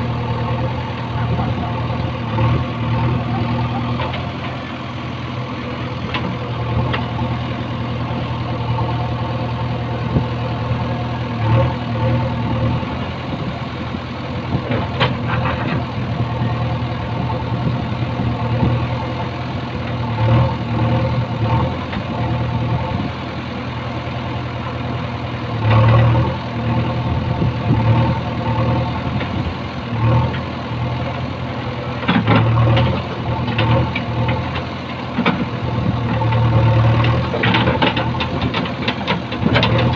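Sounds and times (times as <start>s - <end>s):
diesel engine running: 0.0s - 39.9s.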